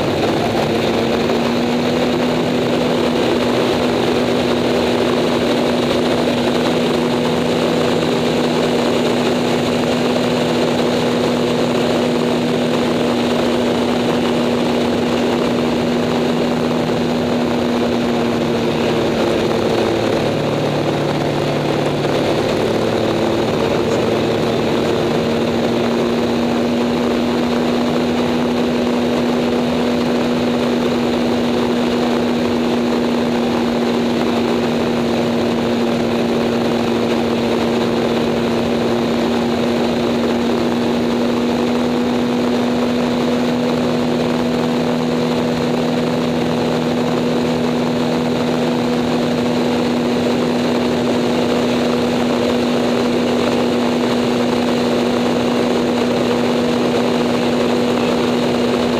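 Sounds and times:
airplane engine and propeller: 0:00.0 - 0:58.9.

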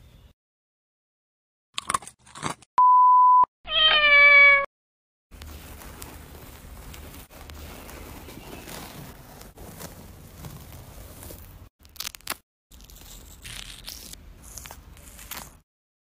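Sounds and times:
electronic beep: 0:02.8 - 0:03.5
cat meowing: 0:03.7 - 0:04.7
fruit skin being peeled: 0:11.3 - 0:15.6.

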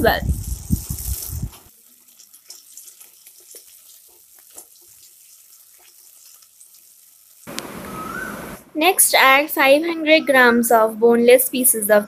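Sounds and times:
frying sizzle: 0:00.0 - 0:08.6.

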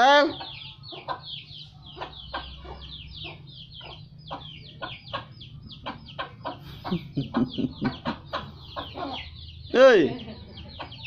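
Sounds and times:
chickens calling: 0:00.0 - 0:11.0.

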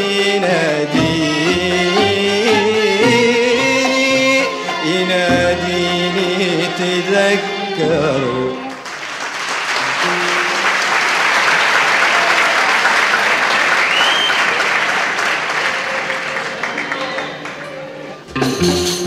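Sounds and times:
music ensemble playing: 0:00.0 - 0:12.2, 0:15.7 - 0:19.0
audience applause: 0:08.7 - 0:18.0.

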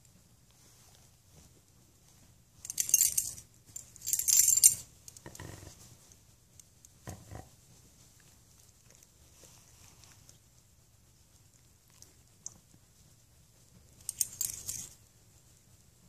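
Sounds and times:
dog collar tags jingling: 0:02.7 - 0:04.9, 0:14.0 - 0:15.0.

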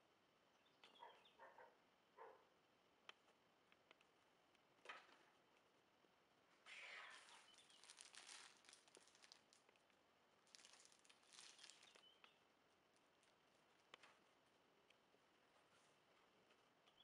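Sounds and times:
plastic bag crinkling: 0:07.1 - 0:12.2.

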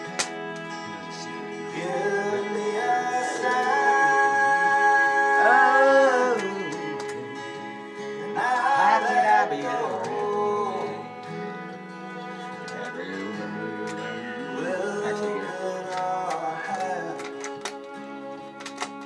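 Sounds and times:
recorded music: 0:00.0 - 0:19.0
man singing loudly: 0:01.8 - 0:07.3, 0:08.4 - 0:11.1, 0:13.1 - 0:17.2.

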